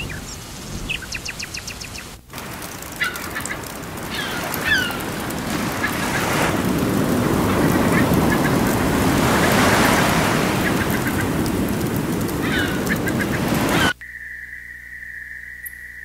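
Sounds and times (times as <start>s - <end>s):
rain: 0.0s - 14.0s
gulls calling: 0.0s - 16.0s
ocean surf: 2.4s - 14.0s.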